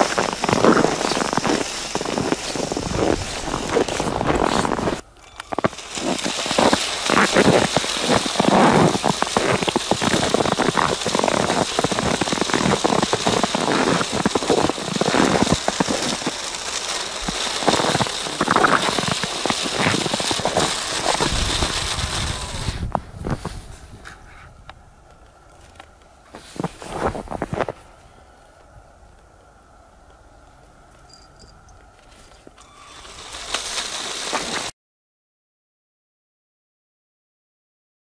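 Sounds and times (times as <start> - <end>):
snow crunching and crackling: 0.0 - 24.4, 25.0 - 31.1, 31.7 - 34.7.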